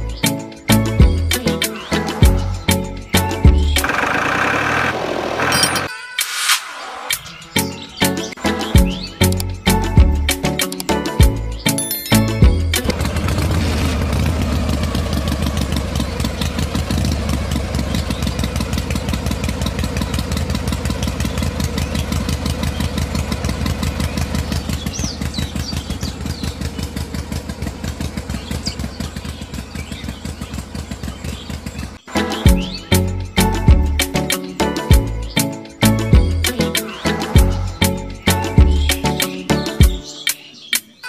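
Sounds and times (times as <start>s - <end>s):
small engine chugging: 3.5s - 5.9s, 12.9s - 32.0s.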